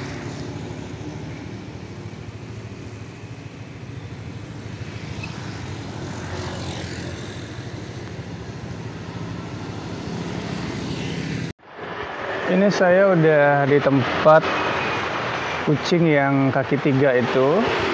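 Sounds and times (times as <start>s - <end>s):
vehicle engine humming: 0.0s - 11.6s.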